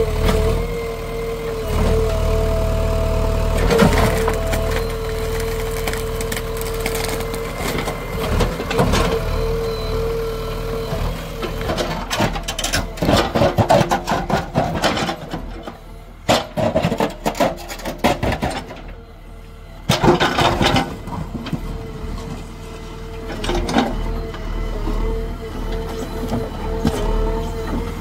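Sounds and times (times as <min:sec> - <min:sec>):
digging crunching and cracking: 0:03.6 - 0:08.9.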